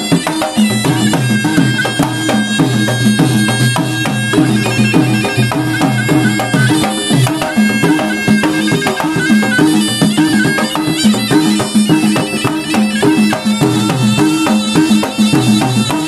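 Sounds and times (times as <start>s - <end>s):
hand drums beating rapidly: 0.0s - 16.0s
reedy oboe melody: 0.0s - 16.0s.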